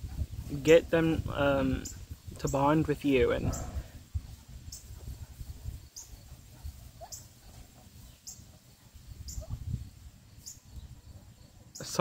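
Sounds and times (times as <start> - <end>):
wind rumbling on microphone: 0.0 - 11.9
faint high chirp: 5.8 - 12.0.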